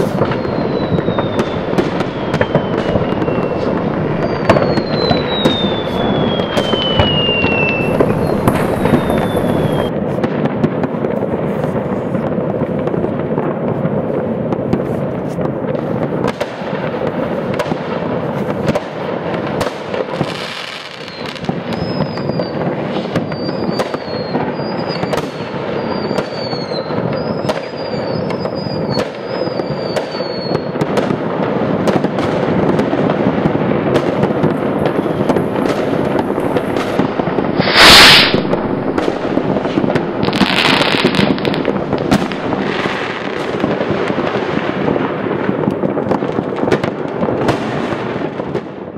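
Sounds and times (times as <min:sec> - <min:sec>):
short firework whistles: 0:00.0 - 0:10.0, 0:20.2 - 0:30.9, 0:34.7 - 0:43.8
falling firework whistle: 0:00.0 - 0:10.2, 0:19.6 - 0:31.2, 0:33.9 - 0:44.9
distant fireworks crackling: 0:00.0 - 0:48.9.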